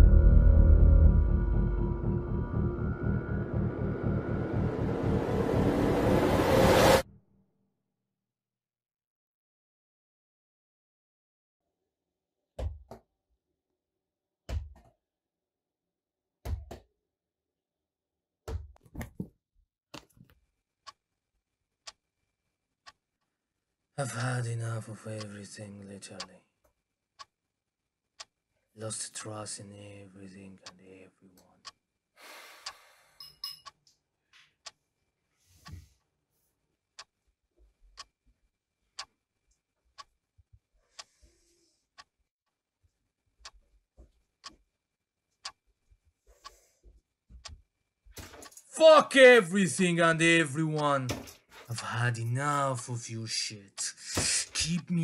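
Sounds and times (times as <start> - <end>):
clock ticking: 1.3 - 5.9, 37.0 - 37.2, 37.8 - 38.2, 38.9 - 40.2, 41.9 - 42.1, 45.4 - 45.6, 48.4 - 55.0
faint clock ticking: 21.8 - 22.0, 22.8 - 23.4, 24.0 - 26.4, 27.2 - 27.4, 28.2 - 31.0, 31.6 - 31.8, 32.6 - 33.9, 36.9 - 42.2, 43.4 - 43.6, 45.4 - 45.6, 51.7 - 55.0.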